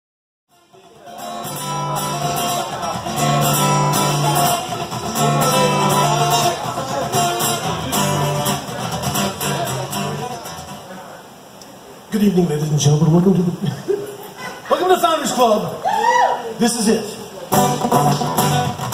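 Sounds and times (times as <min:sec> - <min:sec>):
strummed guitar: 0:00.5 - 0:11.1, 0:17.5 - 0:18.9
bass line: 0:01.4 - 0:10.5, 0:17.5 - 0:18.9.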